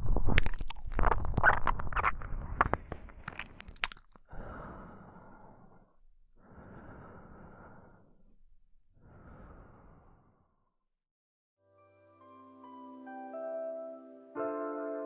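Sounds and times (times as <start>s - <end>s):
wet mouth clicks: 0.0s - 4.7s.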